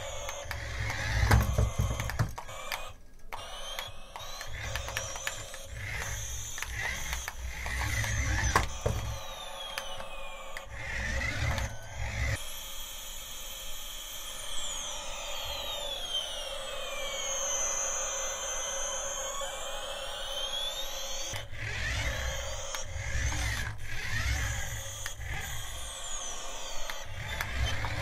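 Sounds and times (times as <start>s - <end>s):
toy clicks: 0.0s - 12.6s, 15.4s - 28.0s
toy motor and gears whirring: 0.0s - 28.0s.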